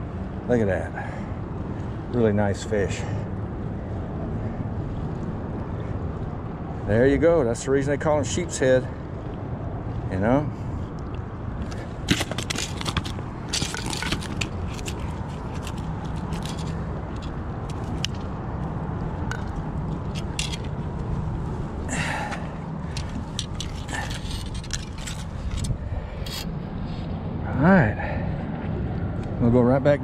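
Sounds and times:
steady low rumble: 0:00.0 - 0:30.0
scrapes and clicks on concrete: 0:11.0 - 0:18.7, 0:19.3 - 0:21.1, 0:21.9 - 0:26.5.

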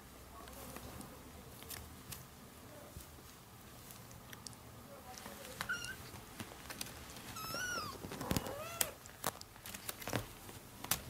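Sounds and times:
kitten mewing: 0:07.4 - 0:09.0.

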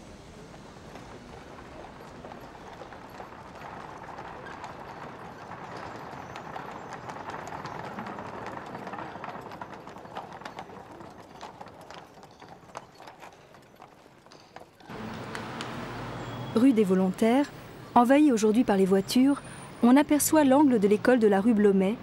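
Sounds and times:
street noise hiss: 0:00.0 - 0:09.6, 0:14.8 - 0:22.0
horse hooves on cobblestones: 0:00.0 - 0:22.0.

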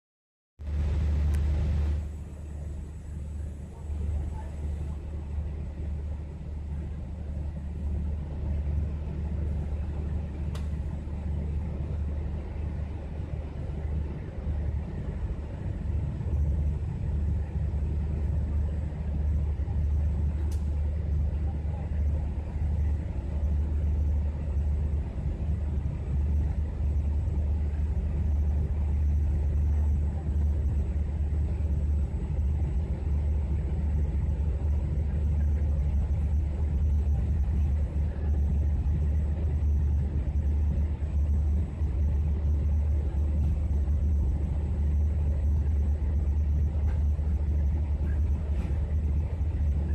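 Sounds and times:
train wheels rumbling on track: 0:00.7 - 0:49.9.

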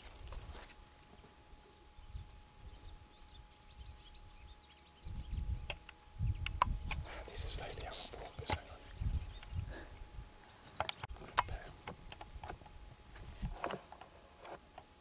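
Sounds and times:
microphone rumbles and clicks: 0:05.0 - 0:14.6.

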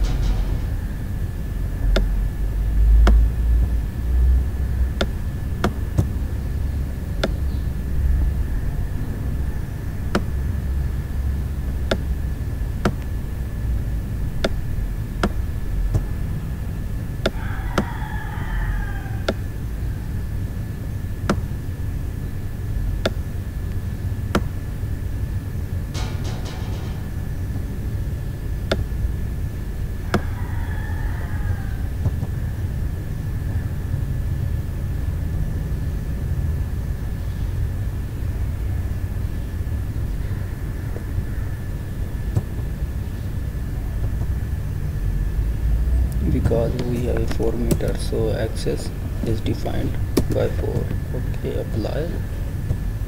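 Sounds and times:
low rumble of background noise: 0:00.0 - 0:53.0.

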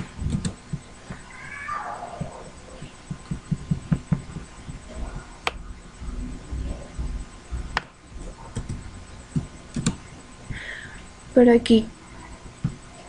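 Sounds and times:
keyboard tapping: 0:02.2 - 0:05.6.

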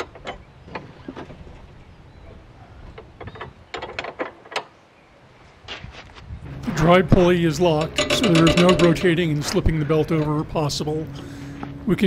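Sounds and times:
metallic clicks and clanks: 0:02.9 - 0:04.7, 0:07.5 - 0:10.8.

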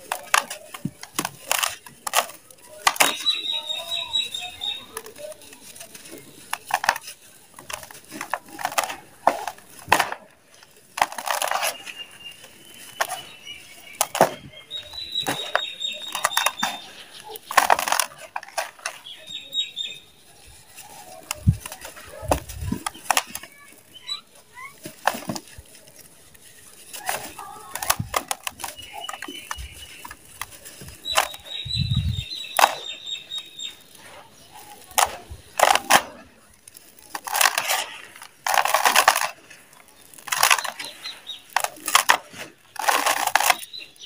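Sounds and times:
dry mud crunching in hands: 0:00.0 - 0:44.0.

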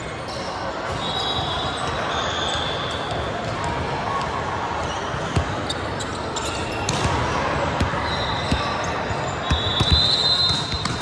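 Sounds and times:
sneaker squeaks: 0:00.0 - 0:03.6, 0:04.8 - 0:11.0
hum of chatter: 0:00.0 - 0:11.0.

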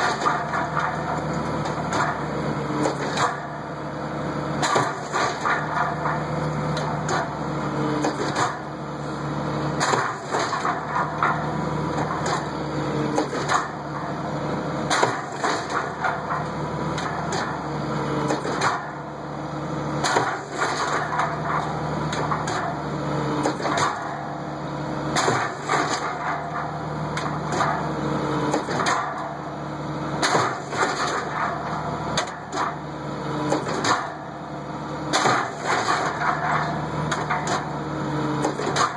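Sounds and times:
metal clanks and knocks: 0:00.0 - 0:03.6, 0:04.6 - 0:07.4, 0:09.7 - 0:17.6, 0:20.0 - 0:22.8, 0:25.1 - 0:29.4, 0:30.2 - 0:32.8, 0:35.1 - 0:37.8, 0:38.4 - 0:38.9
engine and hydraulic drone: 0:00.0 - 0:38.9.

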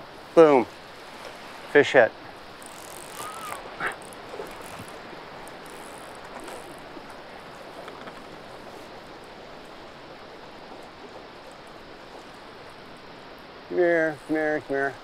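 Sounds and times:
fast river current rushing: 0:00.0 - 0:15.0
fish splashing: 0:02.2 - 0:13.2.

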